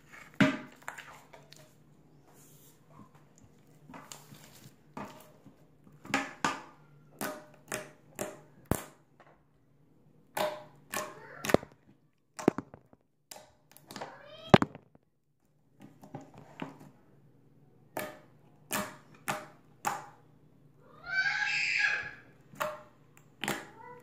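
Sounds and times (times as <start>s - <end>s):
slime popping and squelching: 12.4s - 13.0s.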